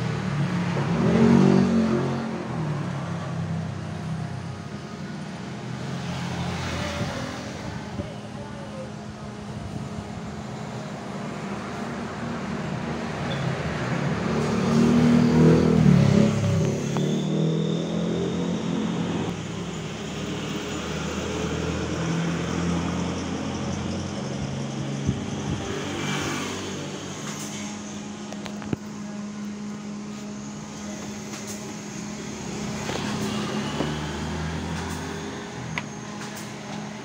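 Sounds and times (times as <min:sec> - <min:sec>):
vehicle engine running: 0:00.0 - 0:37.0.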